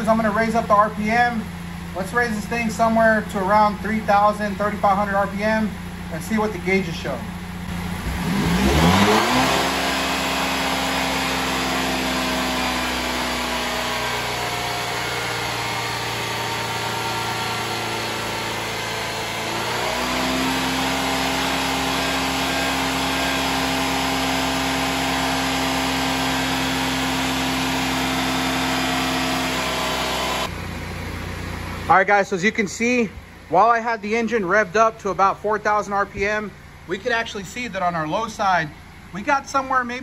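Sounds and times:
car engine at high revs: 0.0s - 31.9s.

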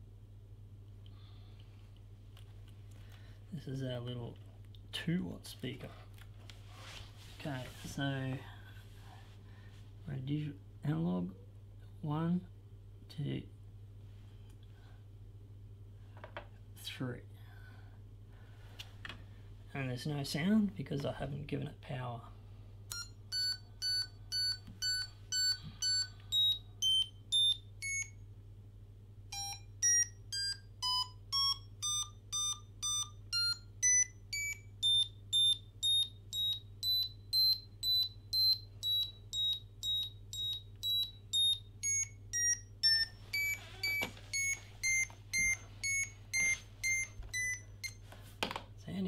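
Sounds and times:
steady low hum: 0.0s - 49.0s
short buzzy beeps: 22.9s - 28.2s, 29.3s - 48.0s.

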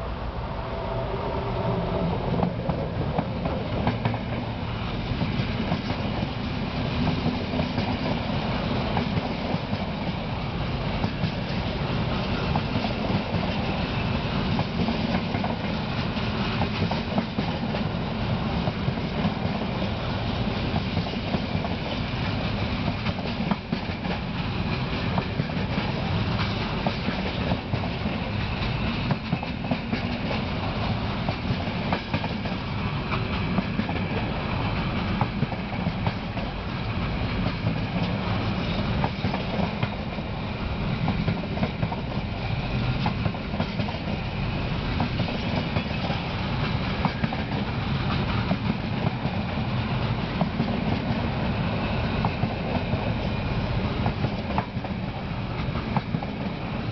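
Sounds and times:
freight train wagons rolling past: 0.0s - 56.9s
wheels clicking over rail joints: 20.7s - 51.4s.

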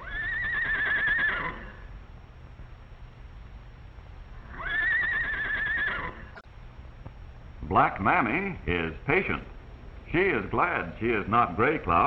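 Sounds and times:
horse whinnying: 0.0s - 1.9s, 4.4s - 6.4s.

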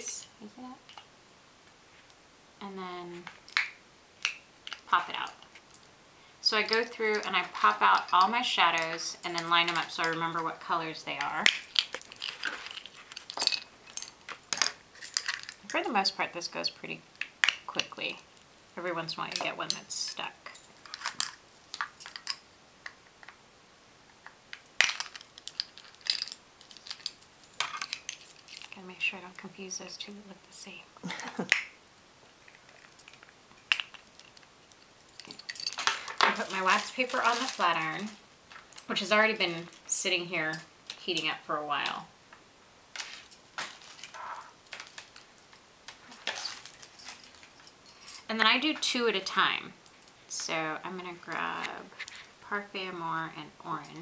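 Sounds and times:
metal bangles clinking: 11.2s - 15.9s, 19.3s - 22.5s, 24.8s - 28.8s, 32.4s - 39.8s, 43.0s - 48.4s
wax paper rustling: 36.1s - 38.2s.

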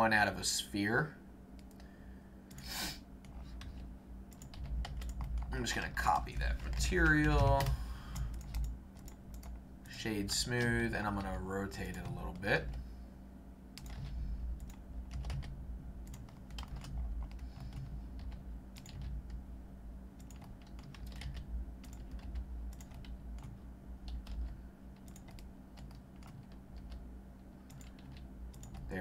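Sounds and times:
steady low hum: 0.0s - 29.0s
keyboard keystrokes: 3.3s - 5.5s, 16.1s - 19.4s, 20.2s - 27.0s.

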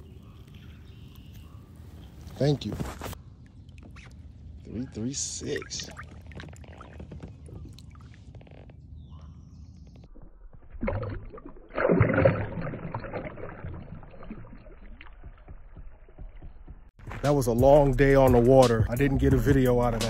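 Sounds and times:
fish splashing in water: 10.6s - 15.6s.

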